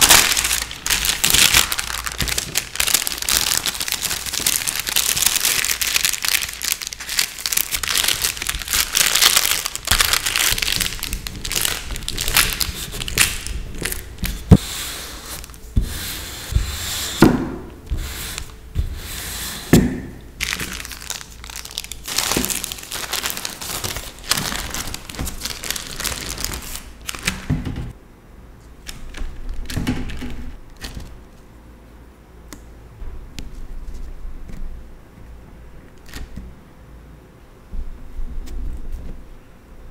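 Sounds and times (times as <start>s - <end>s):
baking parchment crinkling: 0.0s - 15.6s, 20.4s - 27.5s
rolling pin rubbing over paper: 11.3s - 19.7s.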